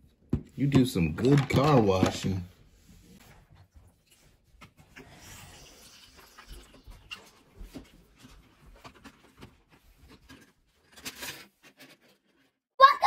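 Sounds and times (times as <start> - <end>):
plastic parts clicking and knocking: 0.7 - 2.4
water hissing from toy tank: 5.0 - 6.6.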